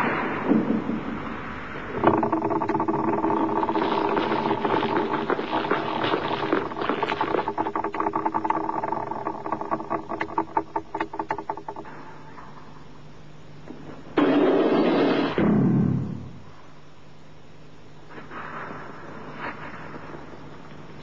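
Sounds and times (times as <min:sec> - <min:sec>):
steady hum: 0:00.0 - 0:21.0
mechanical clicking rattle: 0:02.0 - 0:11.9.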